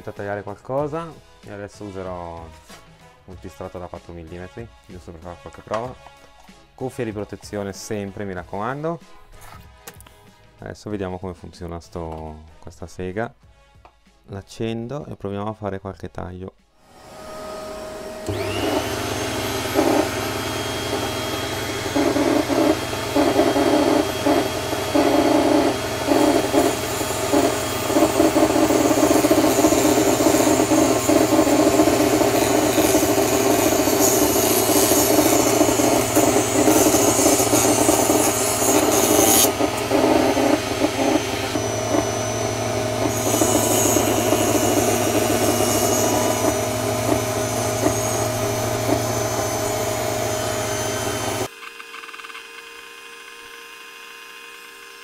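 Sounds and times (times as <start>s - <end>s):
table saw motor running: 16.8s - 55.0s
saw blade cutting plywood: 17.0s - 55.0s.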